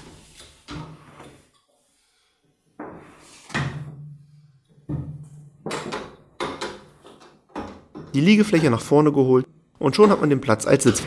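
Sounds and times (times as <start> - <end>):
metal frame knocks and clunks: 4.8 - 8.5.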